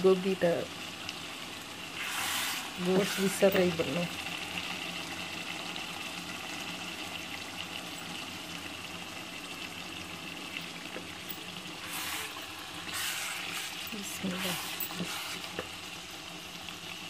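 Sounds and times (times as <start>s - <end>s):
curry bubbling in a pot: 0.1s - 17.0s
wooden spoon stirring: 11.0s - 15.7s.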